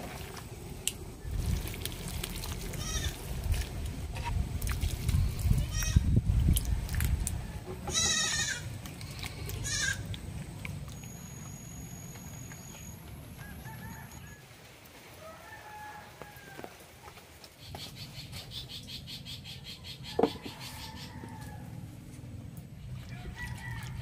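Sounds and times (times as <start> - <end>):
goat bleating: 2.8 - 3.2, 7.8 - 8.7, 9.6 - 10.0.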